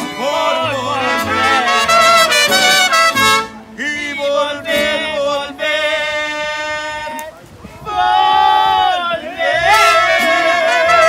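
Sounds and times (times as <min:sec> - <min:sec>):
mariachi band playing: 0:00.0 - 0:07.4, 0:09.2 - 0:11.0.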